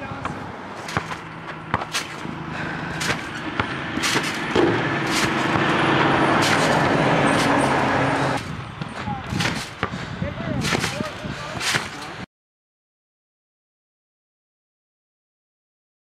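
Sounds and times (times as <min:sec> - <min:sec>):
loud rushing noise with low hum: 0:00.0 - 0:12.3
trampoline springs thudding and creaking: 0:00.7 - 0:12.3.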